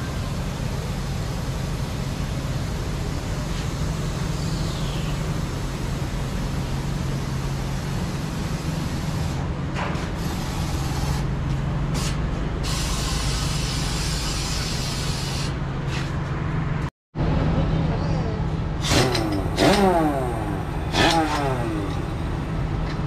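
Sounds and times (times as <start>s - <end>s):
air hissing: 10.0s - 11.3s, 11.9s - 15.6s
truck diesel engine running: 18.6s - 23.0s.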